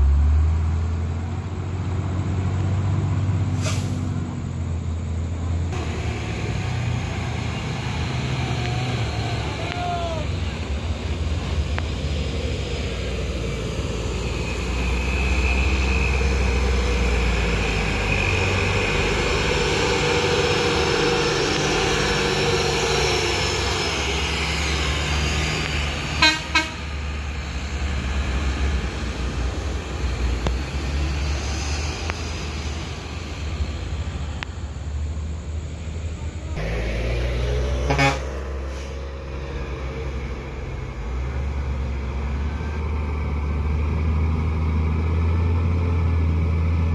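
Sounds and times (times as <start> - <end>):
vehicle engines passing: 0.0 - 46.9
horn toots: 26.2 - 27.0, 37.7 - 38.8.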